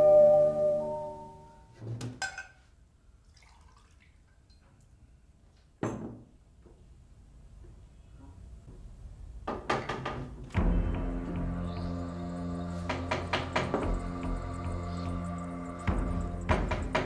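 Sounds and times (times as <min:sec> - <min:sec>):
background music: 0:00.0 - 0:01.7, 0:10.5 - 0:17.0
water pouring into a glass: 0:03.2 - 0:04.4
knock: 0:05.8 - 0:06.3, 0:09.5 - 0:10.4, 0:12.9 - 0:14.0, 0:16.5 - 0:17.0.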